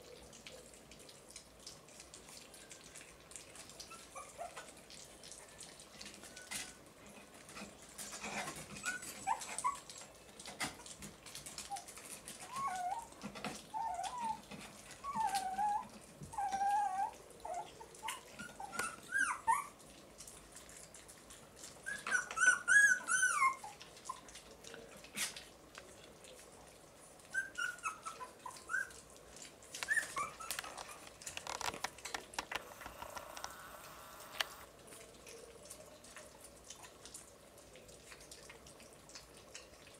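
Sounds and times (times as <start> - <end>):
puppies whimpering: 3.8 - 4.7, 8.2 - 10.0, 11.7 - 19.8, 21.7 - 24.3, 27.3 - 31.8
paws scratching on wooden box: 29.8 - 33.6.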